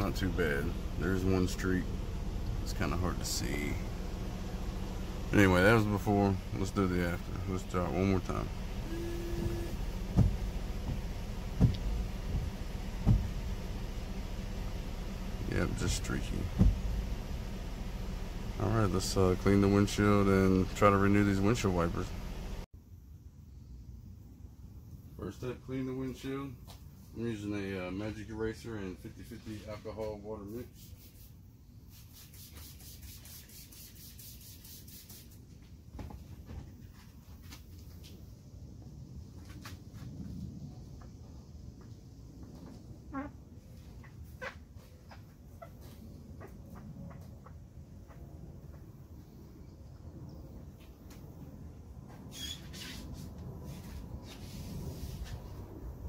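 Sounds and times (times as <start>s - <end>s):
wiper blades thumping: 0.0s - 22.6s
air conditioning hum: 0.0s - 56.0s
windshield wipers sweeping wet glass: 5.6s - 17.9s
spray bottle hissing sprays: 30.9s - 35.4s.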